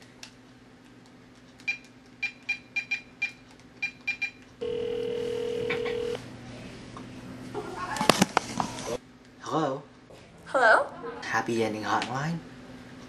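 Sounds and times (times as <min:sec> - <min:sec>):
phone keypad beeps: 0:01.7 - 0:06.2
phone ringing tone: 0:04.2 - 0:06.2.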